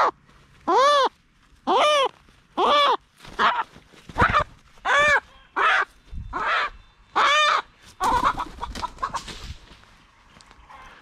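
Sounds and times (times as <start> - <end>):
hen squawking in distress: 0.0 - 8.4
wings flapping: 3.2 - 5.2, 7.9 - 9.8.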